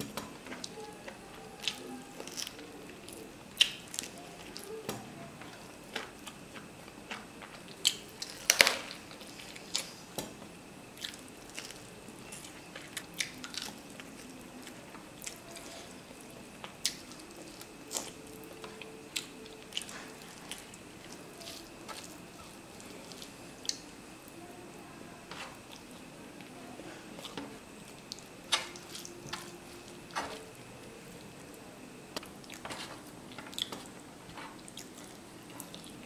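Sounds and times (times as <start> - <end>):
chewing with wet mouth smacks: 5.4 - 10.3, 10.9 - 24.4, 32.1 - 36.0.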